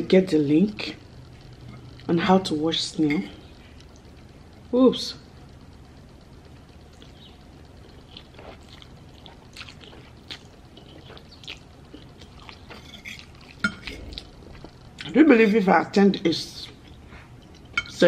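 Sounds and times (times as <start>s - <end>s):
person chewing noodles: 6.8s - 14.8s.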